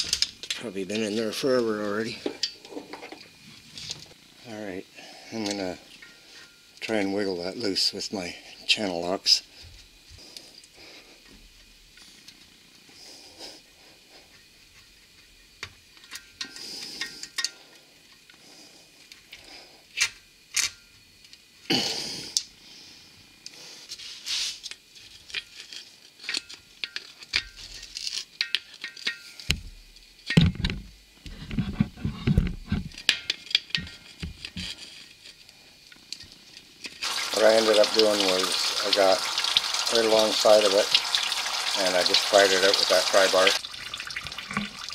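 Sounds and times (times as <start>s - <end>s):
metal tools clicking and scraping: 2.2s - 3.3s, 15.4s - 17.6s, 24.7s - 29.5s.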